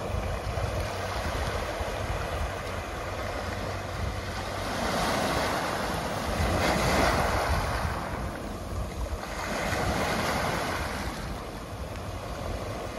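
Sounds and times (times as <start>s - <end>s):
waves washing on pebble beach: 0.0s - 12.9s
wind rumbling on microphone: 0.0s - 12.9s.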